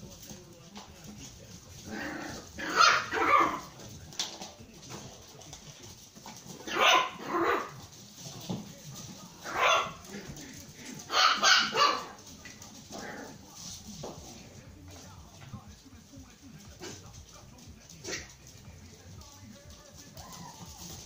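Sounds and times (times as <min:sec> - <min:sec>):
puppies yapping: 0:01.8 - 0:03.8, 0:06.4 - 0:07.9, 0:09.4 - 0:13.4.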